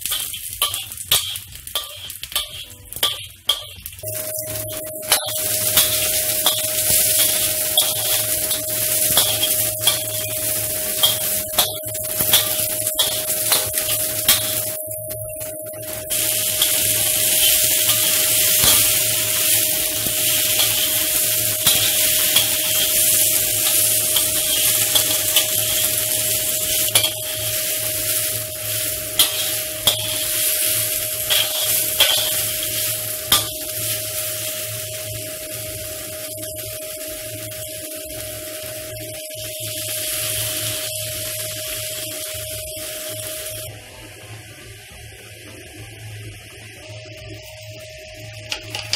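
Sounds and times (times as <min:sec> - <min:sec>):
metal spatula striking a wok: 0:00.0 - 0:15.2, 0:16.1 - 0:34.0, 0:48.5 - 0:48.9
steady hum: 0:00.0 - 0:48.9
vegetables sizzling in a wok: 0:00.0 - 0:48.9.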